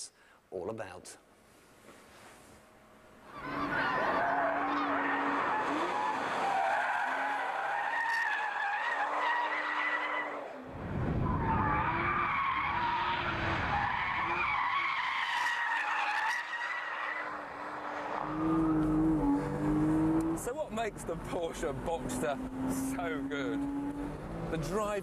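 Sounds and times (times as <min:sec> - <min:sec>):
car engine revving: 0:17.2 - 0:25.0.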